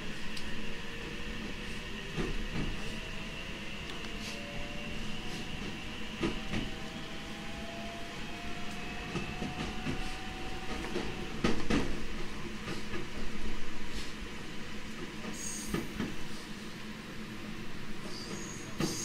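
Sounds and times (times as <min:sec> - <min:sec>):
train motor whine: 0:02.0 - 0:11.5.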